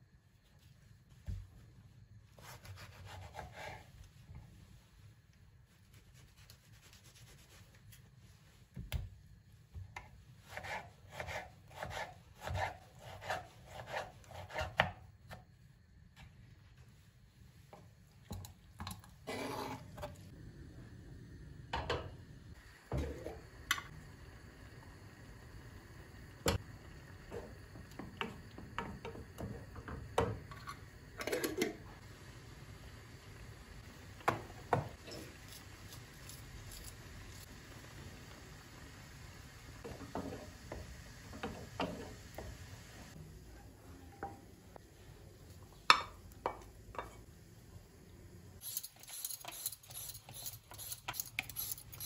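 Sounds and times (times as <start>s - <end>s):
knife slicing tomato on board: 10.4s - 15.0s.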